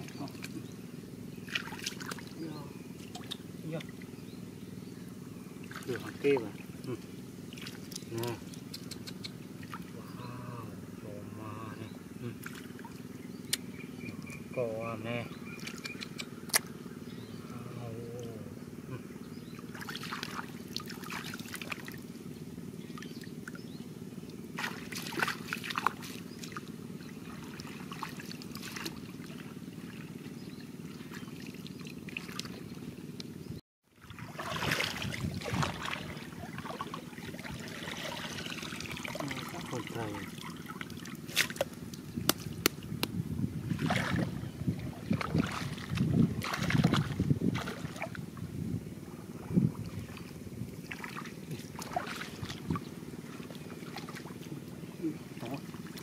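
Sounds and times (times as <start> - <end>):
steady low hum: 0.0 - 56.0
shallow water splashing: 1.4 - 2.4, 5.6 - 8.4, 19.6 - 22.1, 24.5 - 33.0, 34.0 - 43.0, 43.6 - 48.4, 49.3 - 56.0.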